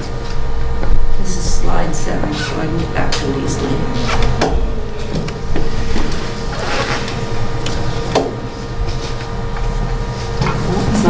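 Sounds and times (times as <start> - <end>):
room hum: 0.0 - 11.0.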